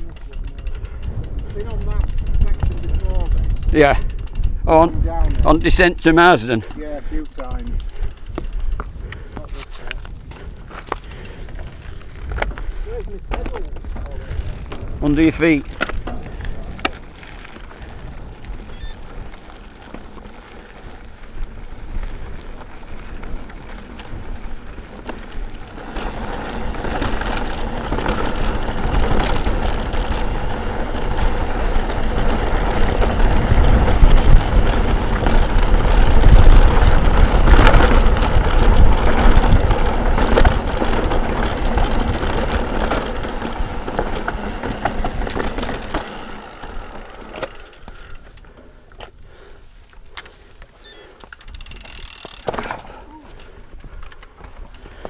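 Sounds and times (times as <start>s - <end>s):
bike rattling and knocking: 0.0s - 48.6s, 51.1s - 55.0s
tyres running over ground: 5.2s - 48.9s
wind rushing over microphone: 25.7s - 45.9s.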